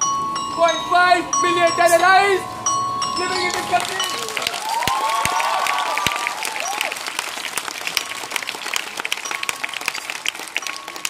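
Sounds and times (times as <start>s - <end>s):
audience clapping: 3.3s - 11.0s.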